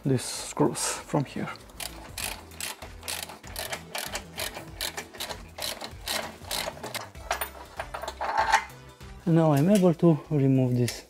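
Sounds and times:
ratchet wrench clicking: 1.6 - 8.6.

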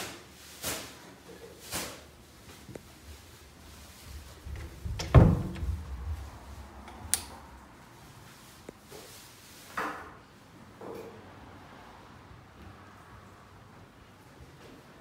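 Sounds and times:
door thud: 4.5 - 6.3
door click: 4.6 - 6.0
door knock: 4.8 - 5.9.

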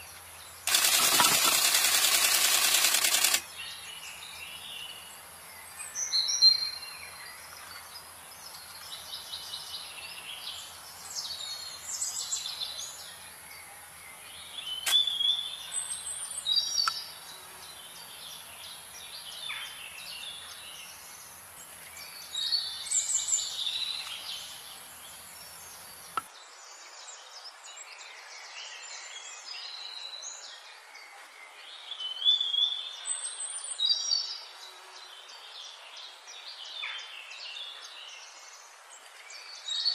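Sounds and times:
birds chirping: 0.0 - 7.8
steady background hiss: 0.0 - 39.9
sharp click: 0.7 - 3.4, 14.8 - 15.1.

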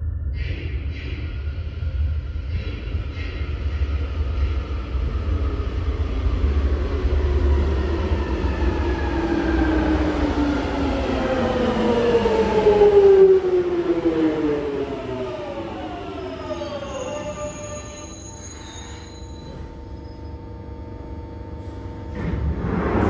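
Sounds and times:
train rumble: 0.0 - 18.1, 21.1 - 23.0.

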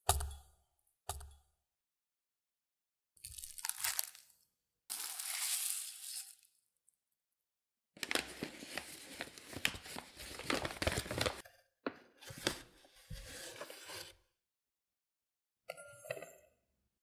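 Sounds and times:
paper bag crinkling: 3.3 - 4.2, 4.9 - 6.4, 8.0 - 11.4.

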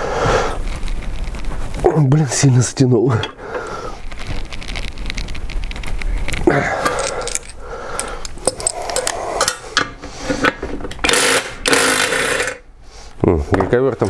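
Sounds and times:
wrench clinking on steel nut: 6.8 - 9.6
impact wrench hammering: 11.0 - 12.6.

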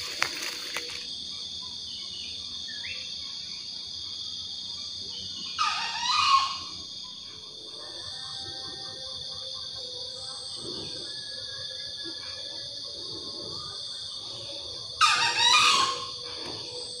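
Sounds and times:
insect chorus: 0.0 - 17.0
animal call sweeping in pitch: 15.0 - 16.8.

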